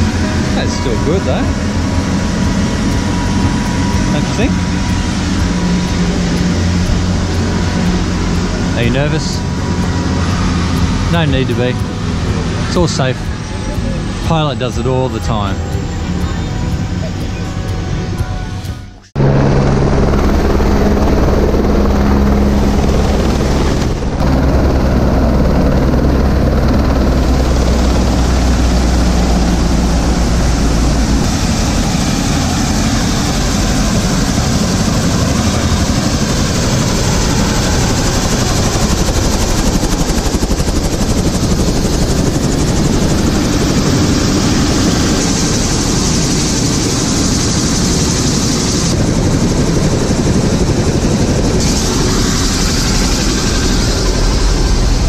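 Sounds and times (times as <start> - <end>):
helicopter engine rushing noise: 0.0 - 55.0
helicopter rotor beat: 0.0 - 55.0.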